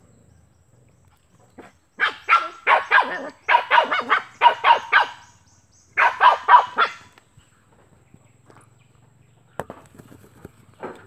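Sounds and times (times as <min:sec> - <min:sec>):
small dog yapping: 0:02.0 - 0:05.2, 0:06.0 - 0:07.1.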